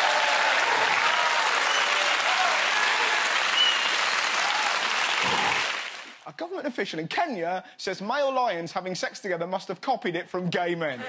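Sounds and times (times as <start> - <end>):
whoops: 0.0 - 5.8
audience applauding and cheering: 0.0 - 6.2.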